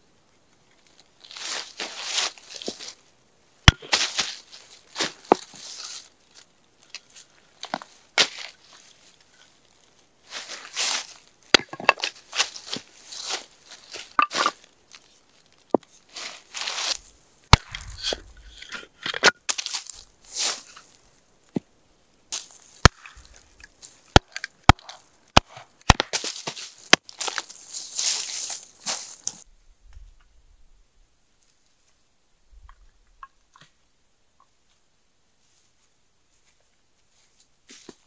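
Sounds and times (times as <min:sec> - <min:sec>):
hatchet chopping wood: 0:03.7 - 0:04.1, 0:17.5 - 0:18.2, 0:22.8 - 0:23.3, 0:24.1 - 0:26.3
wood rustling and clattering: 0:10.3 - 0:14.7.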